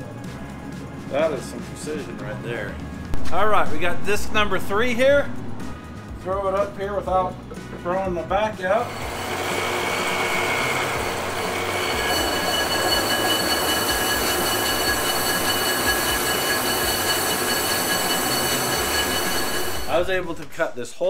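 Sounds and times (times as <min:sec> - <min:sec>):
metal lathe running: 0:08.8 - 0:20.6
cutting bit squealing on metal: 0:08.9 - 0:20.4.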